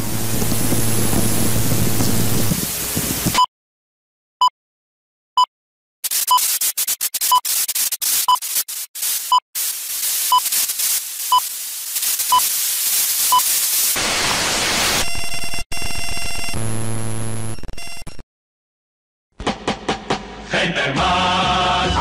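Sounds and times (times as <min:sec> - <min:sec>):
old film crackle and hiss: 0:00.0 - 0:03.4, 0:08.0 - 0:14.9.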